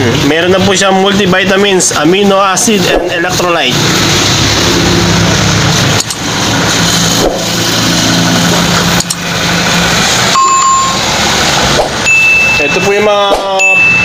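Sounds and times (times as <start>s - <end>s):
motor engine running: 2.9s - 12.4s.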